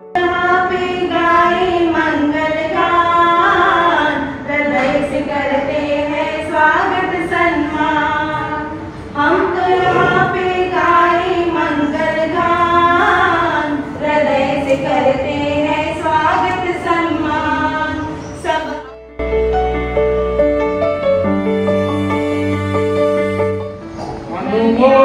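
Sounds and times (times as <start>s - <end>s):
women singing unaccompanied: 0.2s - 18.9s, 24.4s - 25.0s.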